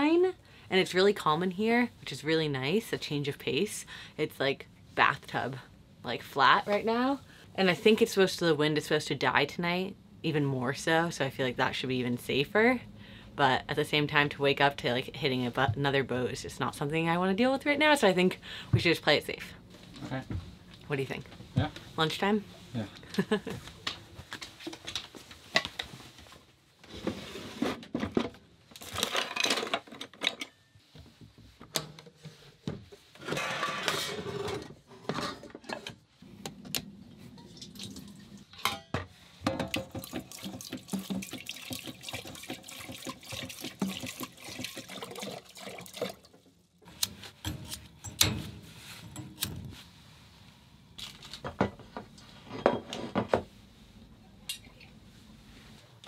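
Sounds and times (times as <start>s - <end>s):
pots and pans clanking: 38.5s - 44.2s
water splashing into a steel sink: 39.6s - 46.5s.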